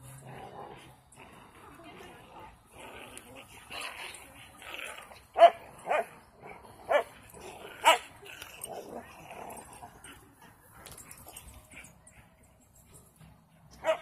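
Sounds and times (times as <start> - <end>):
small dog barking: 13.8 - 14.0.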